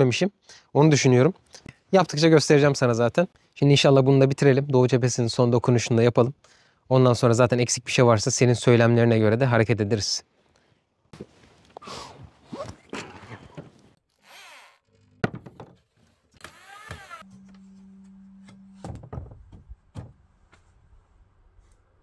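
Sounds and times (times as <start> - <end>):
wood knocks and thunks: 15.2 - 15.9, 18.8 - 20.3.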